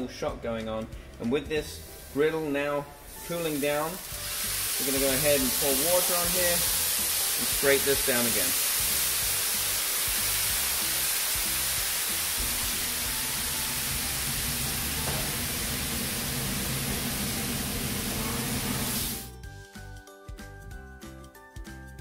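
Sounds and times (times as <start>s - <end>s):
water sizzling on hot griddle: 1.8s - 19.3s.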